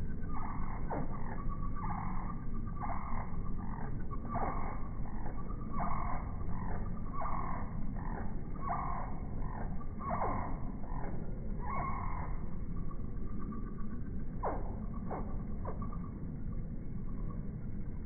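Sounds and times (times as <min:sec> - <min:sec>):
low rumbling hum: 0:00.0 - 0:18.0
slowed deep bird calls: 0:00.0 - 0:18.0.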